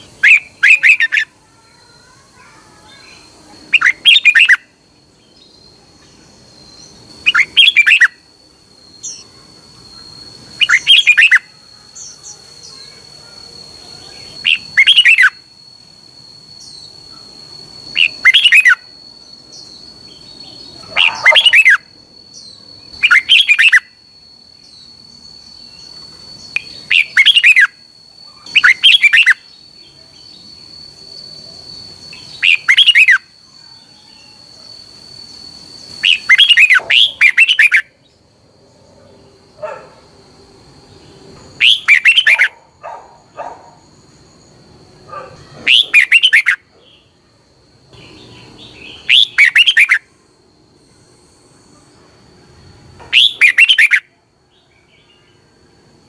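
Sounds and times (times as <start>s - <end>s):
bird singing short loud phrases: 0.0s - 1.3s, 2.4s - 8.2s, 10.5s - 13.0s, 14.0s - 15.4s, 17.9s - 18.9s, 19.5s - 23.9s, 25.6s - 30.4s, 32.1s - 33.2s, 36.0s - 37.9s, 41.6s - 42.5s, 45.4s - 47.1s, 48.0s - 50.0s, 53.1s - 54.1s
thin high whine: 0.0s - 56.0s.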